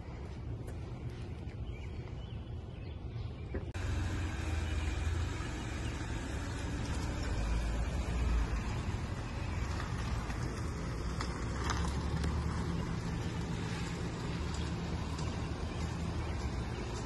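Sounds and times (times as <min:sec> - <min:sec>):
low rumble: 0:00.0 - 0:17.0
car engine driving off: 0:03.7 - 0:17.0.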